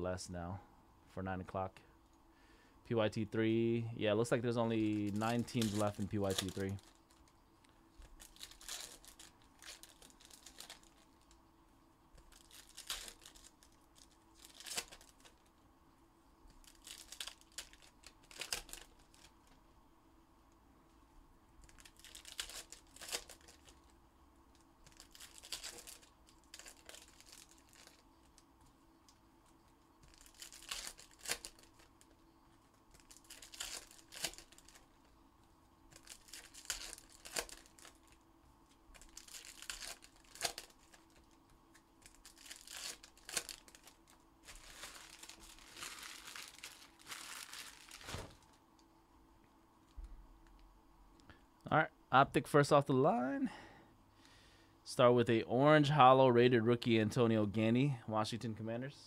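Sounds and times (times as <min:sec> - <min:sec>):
foil wrappers tearing and crinkling: 0:04.6 - 0:07.3, 0:08.0 - 0:11.4, 0:12.2 - 0:15.5, 0:16.6 - 0:19.6, 0:21.6 - 0:23.9, 0:24.8 - 0:28.4, 0:30.0 - 0:35.0, 0:35.9 - 0:38.2, 0:38.8 - 0:48.6.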